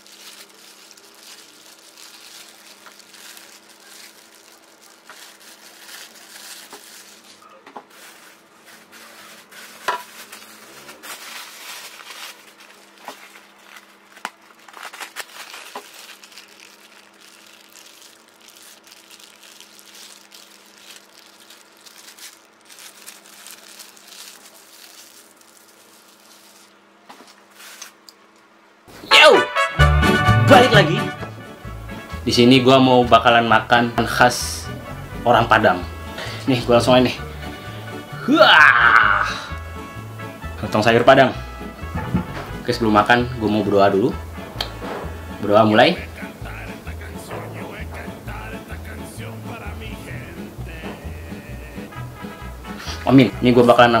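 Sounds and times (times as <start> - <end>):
plastic bag crinkling: 0.0 - 28.4.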